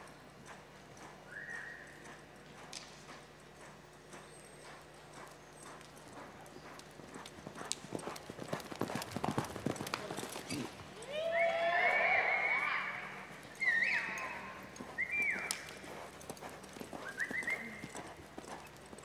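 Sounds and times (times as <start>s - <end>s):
horse hoofbeats on dirt: 0.0s - 12.4s, 13.2s - 19.0s
crowd whooping and whistling: 13.6s - 14.4s, 17.1s - 17.8s.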